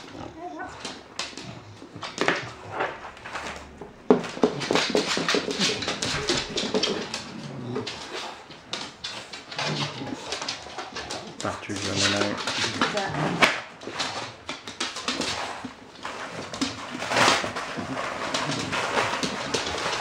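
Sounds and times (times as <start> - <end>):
puppy making small noises: 0.0 - 3.1, 4.6 - 13.4
ball knocking on wooden floor: 3.8 - 7.1.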